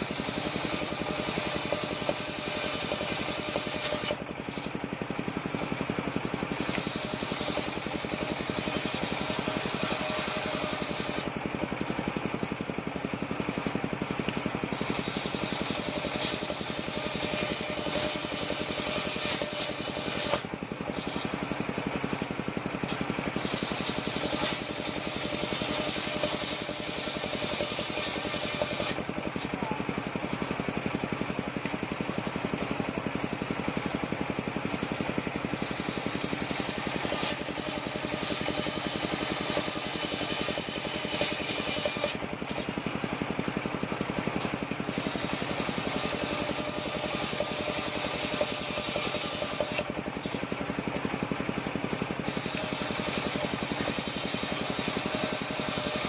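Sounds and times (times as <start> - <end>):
saw hissing through wood: 0.0 - 4.8, 5.8 - 11.3, 14.6 - 29.9, 35.4 - 43.2, 44.0 - 50.6, 51.6 - 56.0
circular saw humming: 0.0 - 11.4, 13.9 - 33.2, 34.8 - 56.0.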